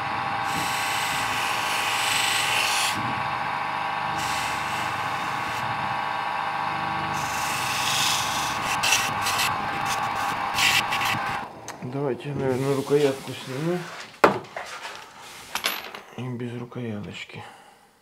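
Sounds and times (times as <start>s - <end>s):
blade rasping on abrasive wheel: 0.0s - 11.5s, 12.5s - 14.0s
electric motor hum: 0.0s - 14.2s.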